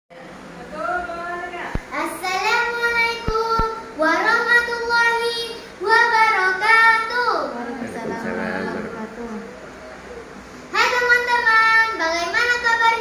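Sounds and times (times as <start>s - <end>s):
girl singing: 1.9s - 7.5s.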